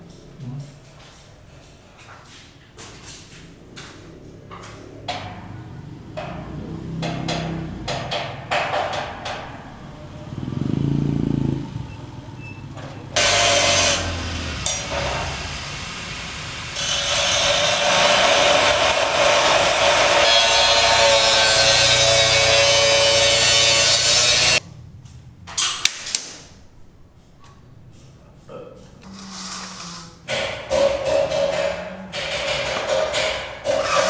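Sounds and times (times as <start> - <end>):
sharp knocks: 6.2 - 9.8, 30.3 - 33.9
power tool running on steel: 13.2 - 24.6.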